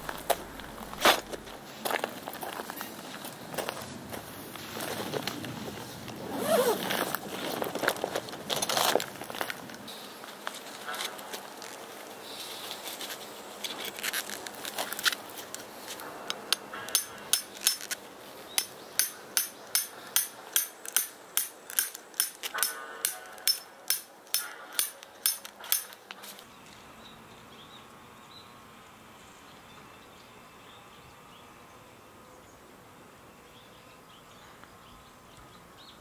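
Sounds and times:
tent fabric rustling: 0:04.2 - 0:16.0
hammer striking metal peg: 0:16.5 - 0:17.9, 0:18.6 - 0:26.0.

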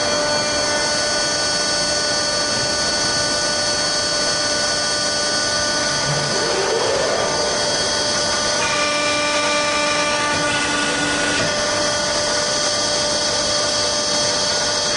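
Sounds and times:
hydraulic pump whining: 0:00.0 - 0:14.9
machine noise: 0:00.0 - 0:14.9.

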